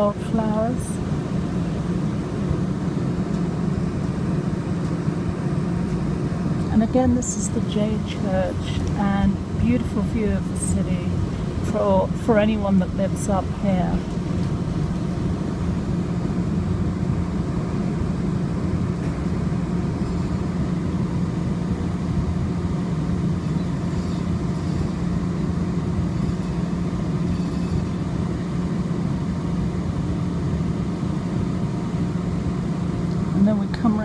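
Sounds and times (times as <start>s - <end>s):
light-rail car running hum: 0.0s - 34.0s.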